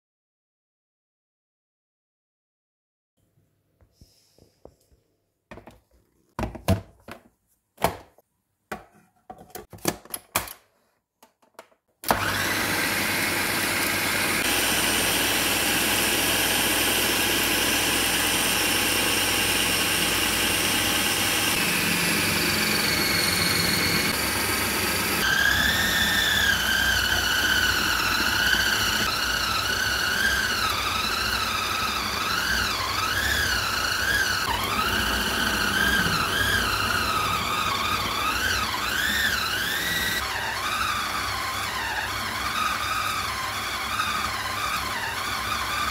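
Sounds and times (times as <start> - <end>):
food processor motor whining: 12.0 - 45.9.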